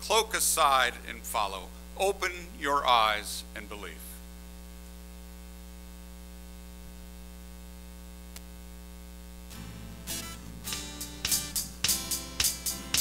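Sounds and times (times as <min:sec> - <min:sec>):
electrical mains hum and hiss: 0:00.0 - 0:13.0
band playing: 0:09.6 - 0:13.0.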